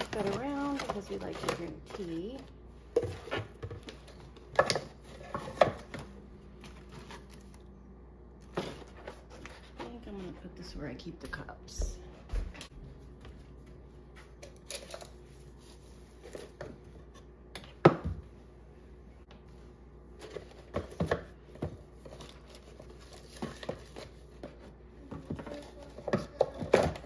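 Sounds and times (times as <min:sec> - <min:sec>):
crinkling: 0:00.0 - 0:06.0
household items clicking and knocking: 0:00.0 - 0:06.1.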